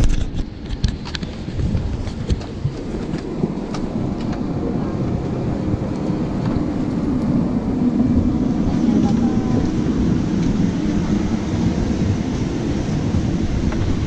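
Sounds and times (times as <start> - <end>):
aircraft air system rumble: 1.1 - 14.0
murmur of passengers' voices: 8.5 - 9.9.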